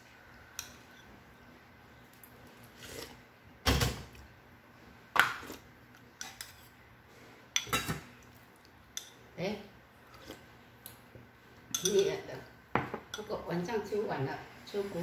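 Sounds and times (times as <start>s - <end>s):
spoon clinking against bowl: 11.7s - 12.2s.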